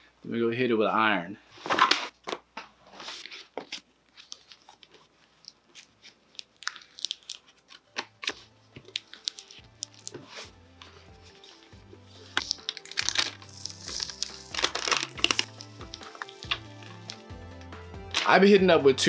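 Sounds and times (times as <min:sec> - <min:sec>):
transfer tape crinkling: 0:03.2 - 0:10.5, 0:11.3 - 0:17.3.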